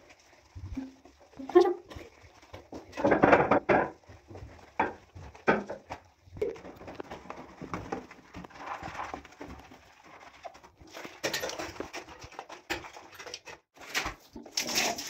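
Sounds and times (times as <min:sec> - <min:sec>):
wet sponge scrubbing and squeaking: 0:00.0 - 0:13.8
cleaning liquid squeezed out: 0:14.4 - 0:15.0.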